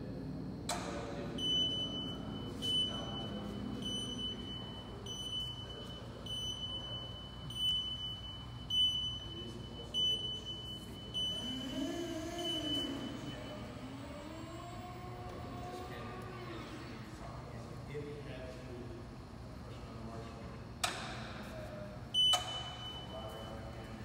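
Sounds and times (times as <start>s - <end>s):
high-pitched warning beeps: 0.7s - 16.8s, 22.1s - 24.0s.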